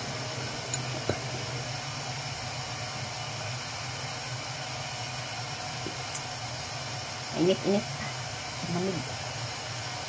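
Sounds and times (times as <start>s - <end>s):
room noise hiss: 0.0s - 10.0s.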